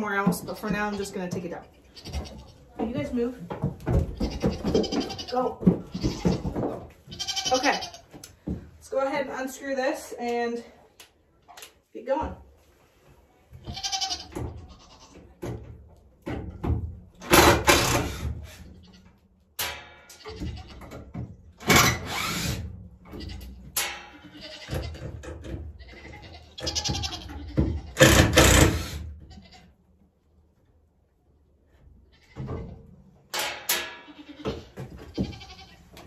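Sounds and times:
goats bleating: 4.2s - 8.1s, 13.6s - 15.2s, 24.2s - 25.0s, 25.8s - 28.0s, 29.3s - 29.7s, 34.1s - 35.9s.

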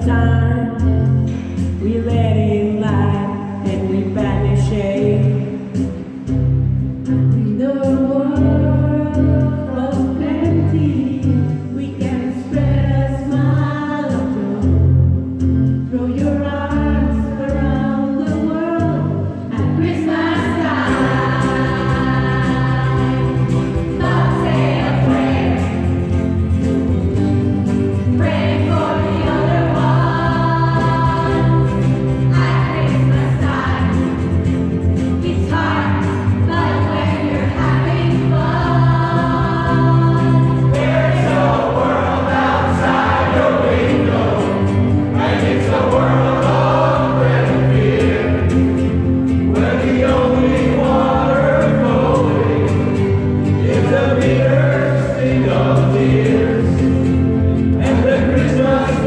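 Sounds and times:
backing track with bass line: 0.0s - 59.0s
choir singing: 19.8s - 27.1s, 28.1s - 59.0s.

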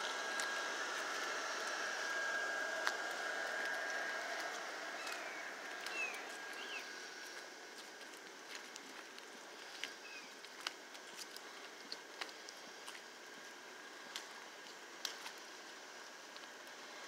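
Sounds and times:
soft steady hiss: 0.0s - 17.0s
faint bird chirps: 5.0s - 7.0s, 10.0s - 10.4s.

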